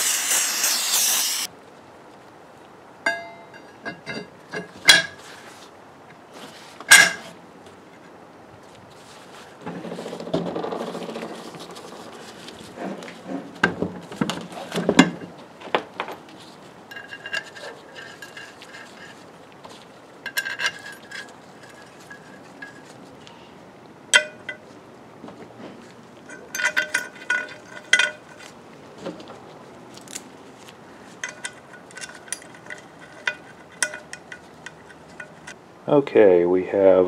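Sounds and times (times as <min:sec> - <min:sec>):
metal clinks and clicks: 0:31.2 - 0:35.6.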